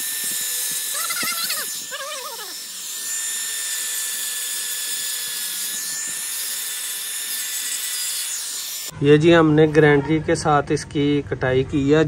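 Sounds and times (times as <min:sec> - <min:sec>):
angle grinder cutting metal mesh: 0:00.0 - 0:08.9.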